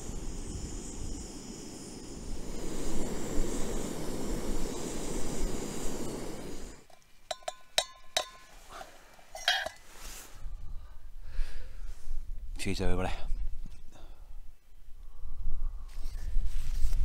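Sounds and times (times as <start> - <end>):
metal pot and lid clinking: 6.9 - 8.5, 9.3 - 9.8.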